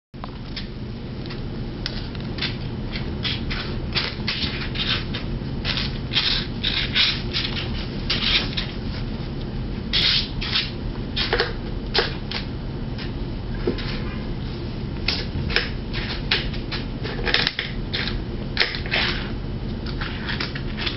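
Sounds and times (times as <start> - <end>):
steady low hum: 0.2 - 20.9.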